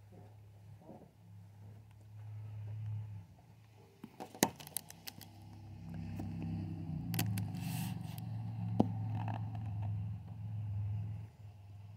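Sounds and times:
car driving past: 0:05.2 - 0:11.9.

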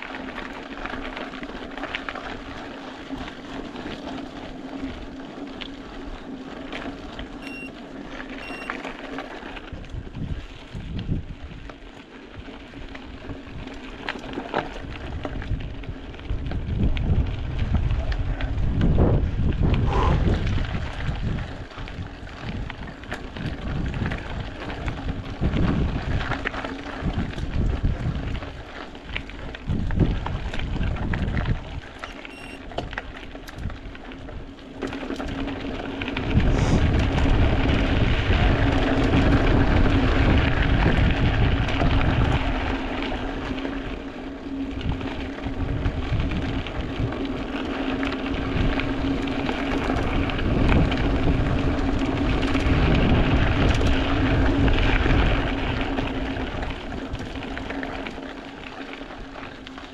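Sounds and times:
mountain bike tyre noise: 0:00.0 - 0:59.9
wind buffeting microphone: 0:09.6 - 0:11.7, 0:14.7 - 0:32.0, 0:35.2 - 0:57.9
steady low hum: 0:19.6 - 0:20.6.

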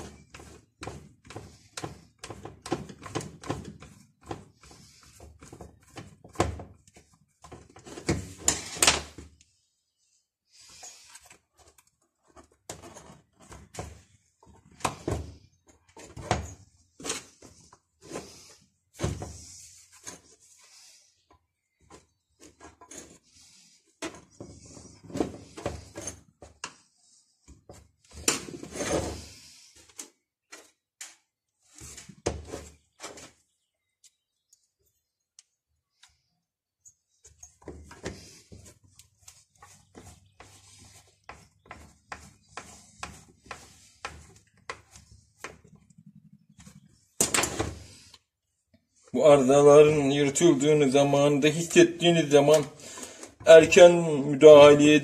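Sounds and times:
hand tools clicking and scraping: 0:00.0 - 0:09.2, 0:21.8 - 0:26.8.

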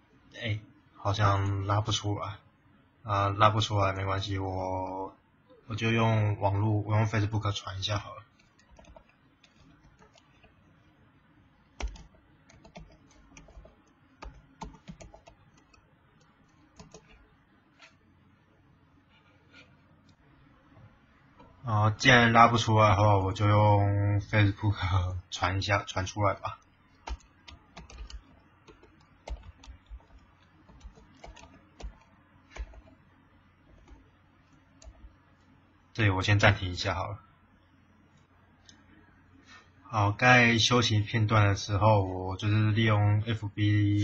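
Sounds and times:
keyboard typing: 0:08.3 - 0:10.8, 0:11.7 - 0:18.0, 0:26.6 - 0:35.2.

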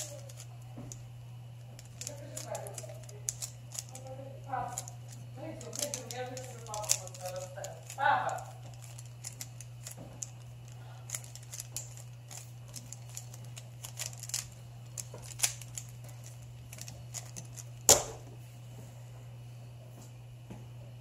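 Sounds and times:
speed cube clicking: 0:01.8 - 0:04.0, 0:04.7 - 0:10.4, 0:11.1 - 0:18.1.

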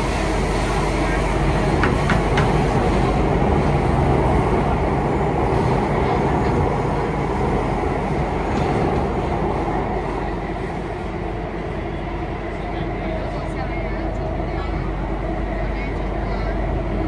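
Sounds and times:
train rumble and hum: 0:00.0 - 0:17.0.

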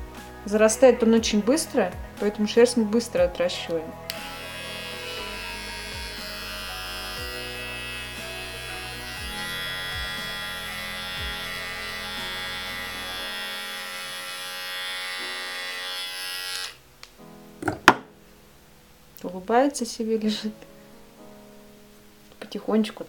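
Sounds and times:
electric hair clipper buzzing: 0:04.1 - 0:16.8.

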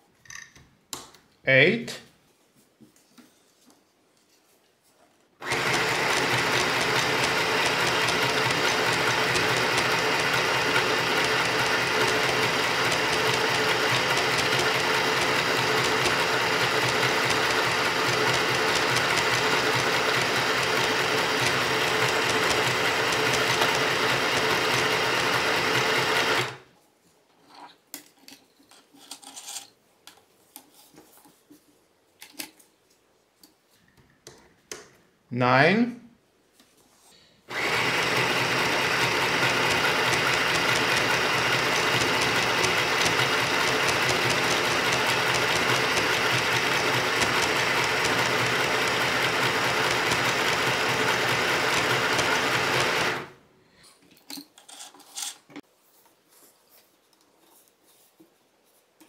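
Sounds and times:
sewing machine stitching: 0:05.4 - 0:26.6, 0:37.5 - 0:53.4.

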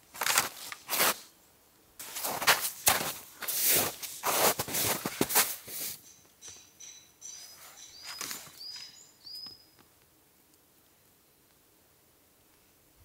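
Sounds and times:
small bird chirping: 0:05.9 - 0:09.9.

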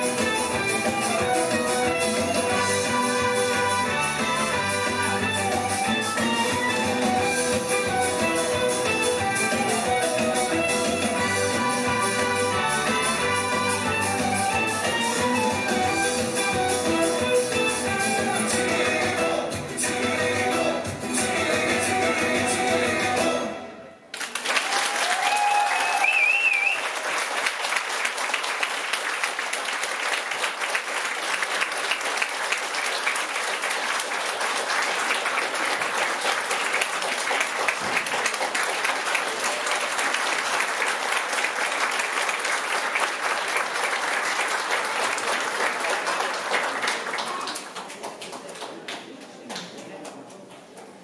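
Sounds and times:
dance music: 0:00.0 - 0:23.7
audience applause: 0:24.1 - 0:50.3.

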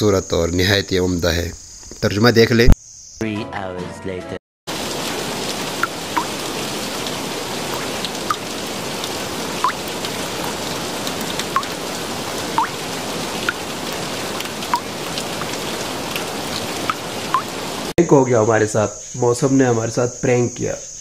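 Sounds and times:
rain hiss: 0:04.7 - 0:21.0
water drops plinking: 0:05.8 - 0:06.5, 0:09.6 - 0:10.0, 0:11.4 - 0:11.8, 0:12.5 - 0:12.8, 0:14.4 - 0:15.2, 0:16.1 - 0:17.6.

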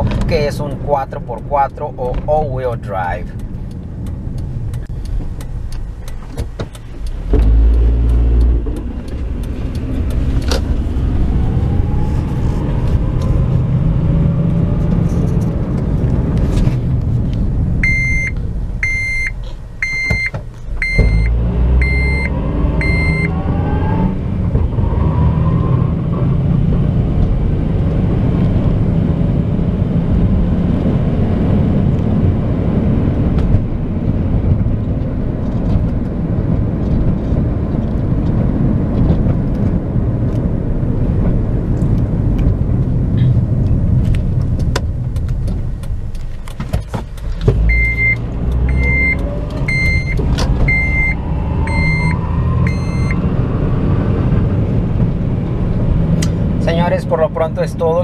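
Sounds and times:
car engine and road rumble: 0:00.0 - 0:58.0
dashboard chime beeping: 0:17.8 - 0:23.3, 0:47.7 - 0:53.2.

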